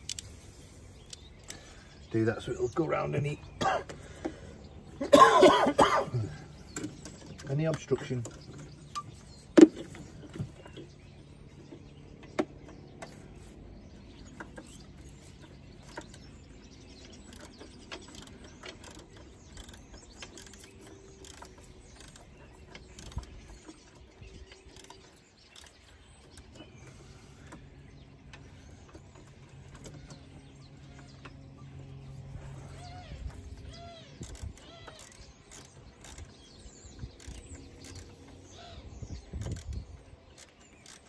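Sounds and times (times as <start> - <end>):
ratchet spanner clicking: 17.3 - 23.4, 24.6 - 25.8, 34.1 - 38.5, 39.2 - 41.0.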